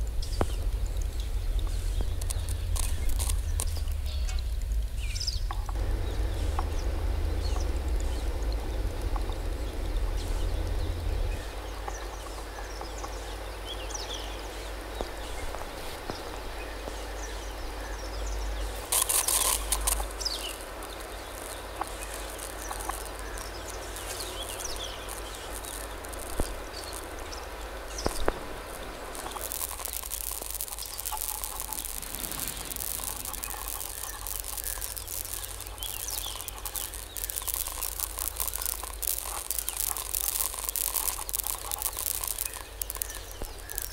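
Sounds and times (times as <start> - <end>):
steady low rumble: 0.0 - 19.0, 19.6 - 43.9
crackling rustle: 0.0 - 43.9
sharp clicks: 0.3 - 4.0, 18.8 - 43.9
small bird chirps: 9.7 - 43.9.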